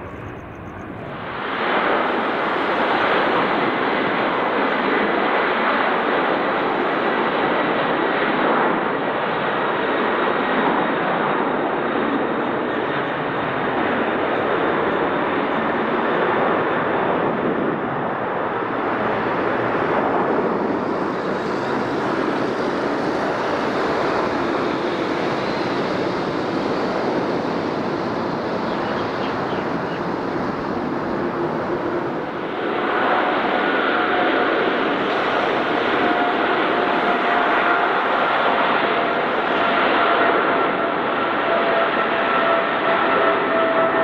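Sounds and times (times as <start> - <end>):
jet engine whine: 0.0 - 44.0
jet engines roaring at takeoff: 0.0 - 44.0.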